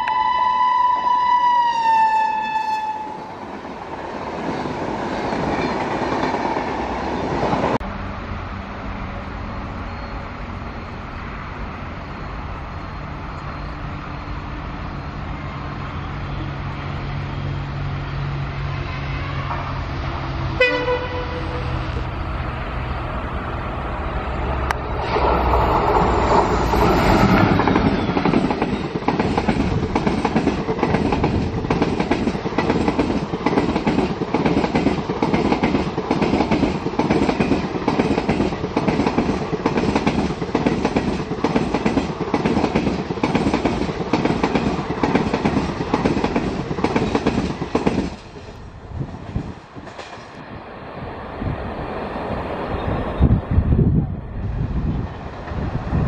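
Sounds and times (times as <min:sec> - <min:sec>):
train horn blast: 0:00.0 - 0:03.3, 0:18.5 - 0:22.0
train horn falling in pitch: 0:00.0 - 0:03.3, 0:20.6 - 0:21.9
diesel locomotive engine droning: 0:00.0 - 0:56.0.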